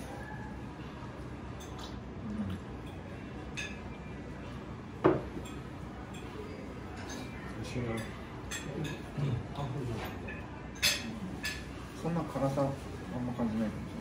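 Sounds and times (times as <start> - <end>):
dishes and cutlery clinking: 2.7 - 12.8.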